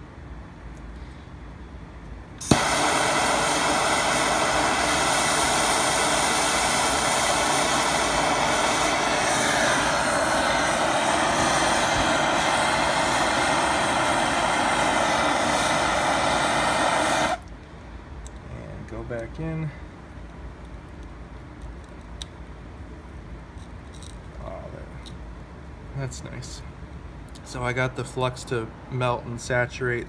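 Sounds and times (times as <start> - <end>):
propane torch hissing: 2.4 - 17.4
torch ignition click: 2.4 - 17.6.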